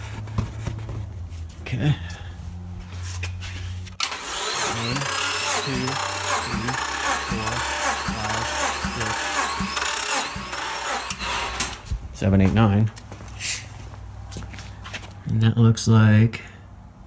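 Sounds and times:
starter motor cranking engine: 4.0 - 11.9.

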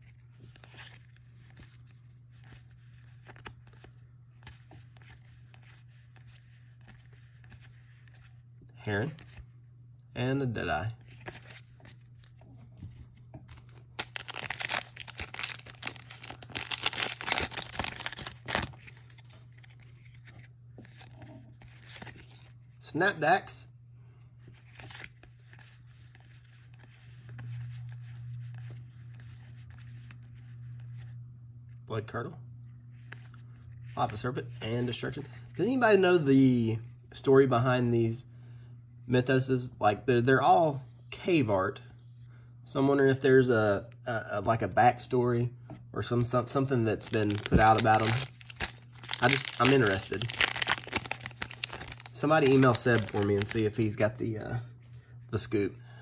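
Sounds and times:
low steady hum: 0.0 - 56.0
cards sliding and flipping: 0.2 - 8.3, 11.0 - 22.5.

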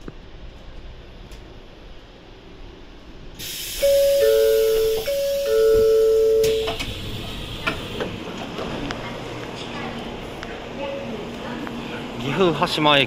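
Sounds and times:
air hiss of train door: 3.4 - 8.2
two-note door chime: 3.8 - 6.8
platform noise: 3.8 - 8.2.

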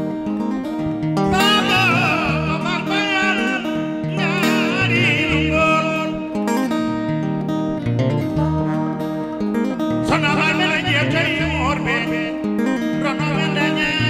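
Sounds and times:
plucked guitar: 0.0 - 14.0
man singing high phrases: 1.3 - 6.4, 10.0 - 14.0.

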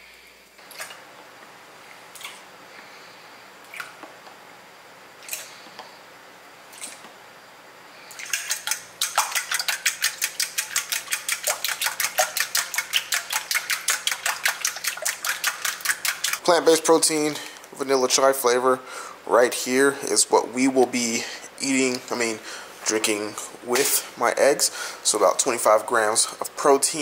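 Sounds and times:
eggs beaten in metal bowl: 8.1 - 17.5.

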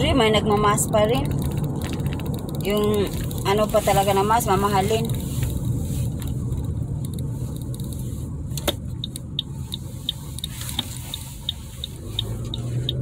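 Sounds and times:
car cabin road noise: 0.0 - 13.0
faint regular ticks: 9.0 - 13.0.

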